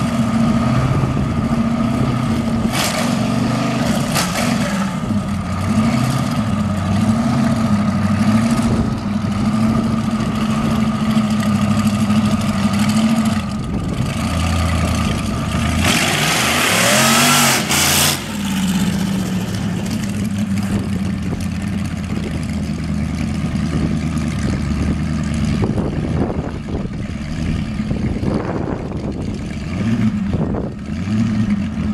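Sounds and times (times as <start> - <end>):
dragster engine revving: 0.0 - 22.3.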